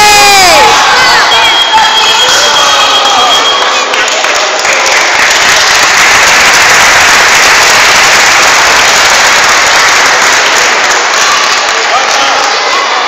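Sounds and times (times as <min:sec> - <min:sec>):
crowd applauding: 0:00.0 - 0:01.5, 0:02.2 - 0:13.0.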